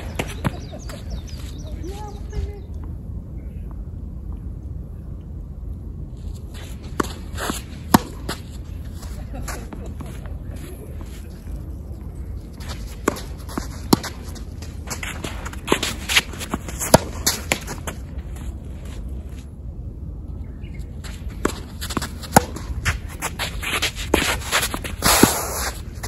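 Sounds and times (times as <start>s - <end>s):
racket striking tennis ball: 6.8s - 8.5s, 13.0s - 18.0s, 21.4s - 26.0s.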